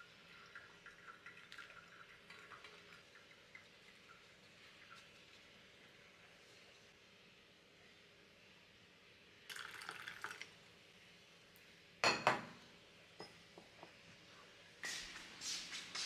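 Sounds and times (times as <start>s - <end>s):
coffee pouring into mug: 0.0s - 6.4s, 9.5s - 10.6s
glass carafe set down: 12.0s - 12.6s.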